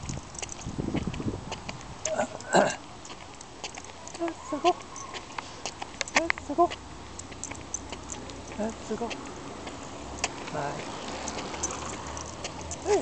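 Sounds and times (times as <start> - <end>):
dog footsteps on concrete: 0.0 - 13.0.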